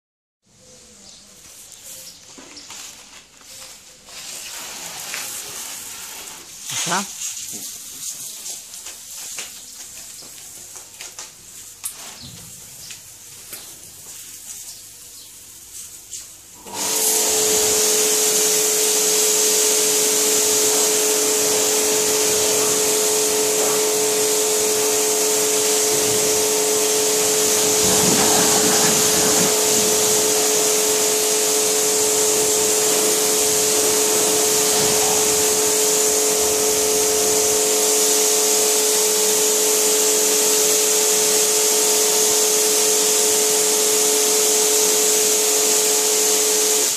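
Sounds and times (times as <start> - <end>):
foam spray hissing: 4.0 - 8.8, 15.5 - 46.9
pressure washer motor whine: 16.6 - 46.9.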